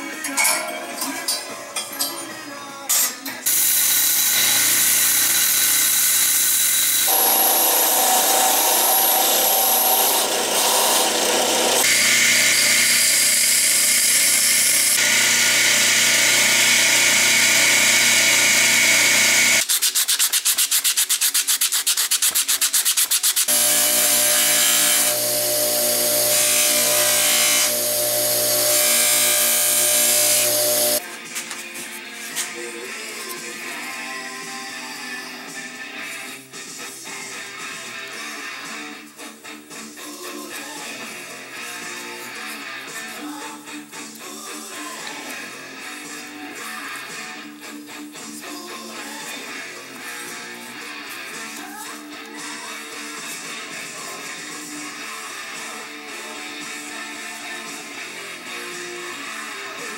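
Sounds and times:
belt grinder grinding steel: 0:03.5 - 0:19.6, 0:23.4 - 0:31.0
bench buffer polishing blade: 0:03.5 - 0:31.0.

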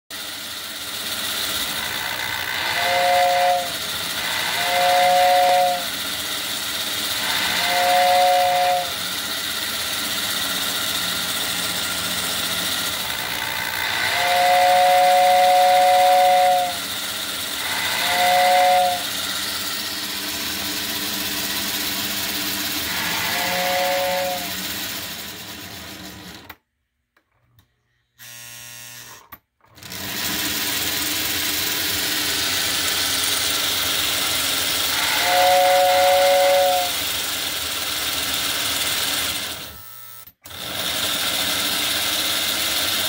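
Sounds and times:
toy locomotive motor whirring: 0:00.1 - 0:26.6, 0:28.2 - 0:43.0
two-note electric train whistle: 0:01.8 - 0:06.2, 0:07.1 - 0:09.4, 0:13.3 - 0:19.9, 0:22.8 - 0:24.8, 0:34.9 - 0:37.2.

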